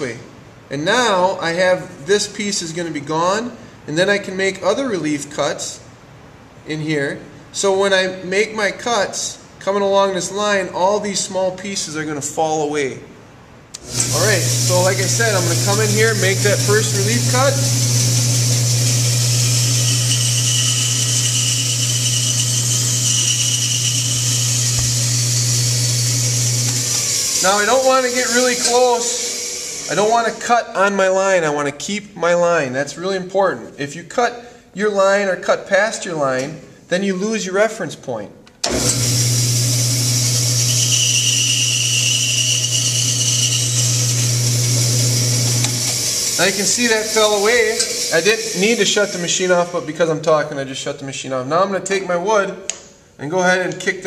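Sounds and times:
bandsaw cutting wood: 13.8 - 30.4, 38.7 - 50.2
high whine of blade in wood: 13.8 - 30.4, 38.7 - 49.9.

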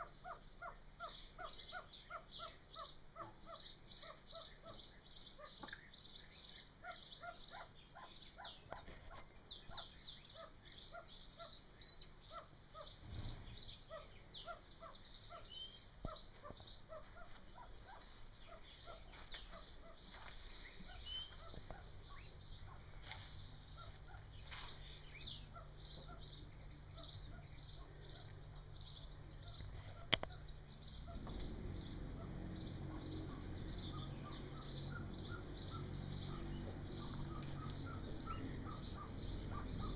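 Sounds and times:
chicks peeping: 0.0 - 39.9
steady low rumble: 12.9 - 39.9.

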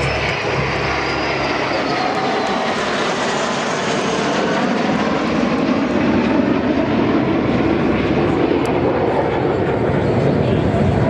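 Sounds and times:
jet engines roaring overhead: 0.0 - 11.0.

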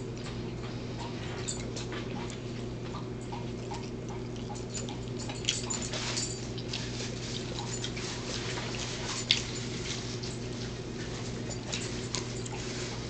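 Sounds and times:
low electrical hum: 0.0 - 13.0
wrapper rustling and crackling: 5.9 - 13.0.

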